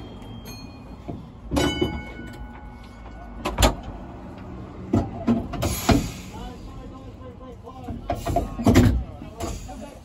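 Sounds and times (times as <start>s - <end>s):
metallic clank ringing: 0.0s - 3.0s
tram rumbling: 0.0s - 10.0s.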